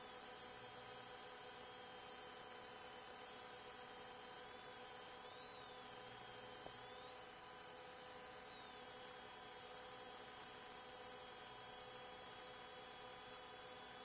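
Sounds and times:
faint wavering high whistle: 5.3s - 5.8s, 6.8s - 8.8s.

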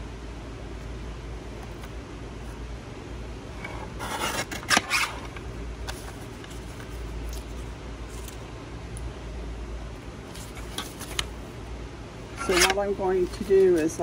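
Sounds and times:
paper trimmer blade cutting paper: 12.4s - 12.8s.

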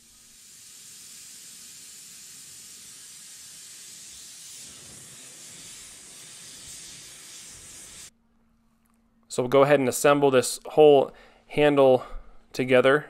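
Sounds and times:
gas torch hissing: 0.0s - 8.1s.

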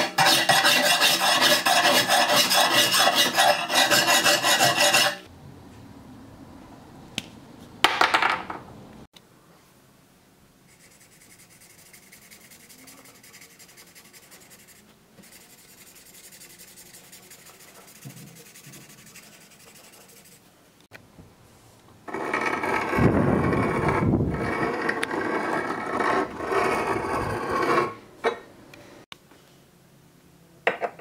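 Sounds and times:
marker scratching on steel: 0.0s - 5.3s, 10.7s - 20.4s.

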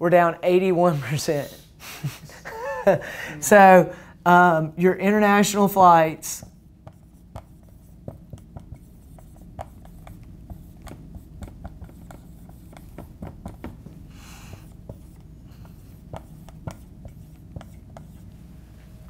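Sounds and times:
marker writing on whiteboard: 6.2s - 18.5s.

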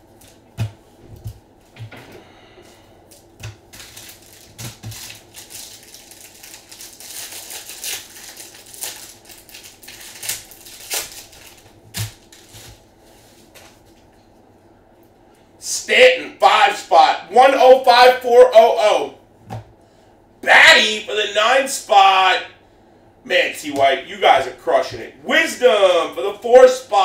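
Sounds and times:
foil wrappers crinkling: 3.1s - 14.0s.

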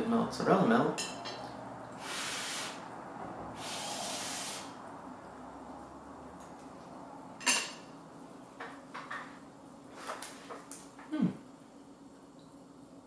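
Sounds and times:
puffs of breath: 2.0s - 2.8s.

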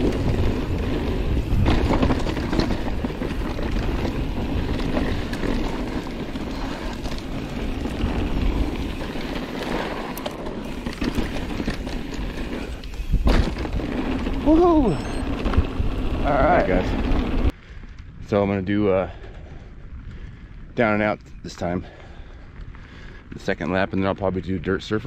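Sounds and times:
bike rattling over bumps: 0.0s - 18.2s
bike tires on dirt: 0.0s - 25.0s
wind buffeting microphone: 0.0s - 25.0s.

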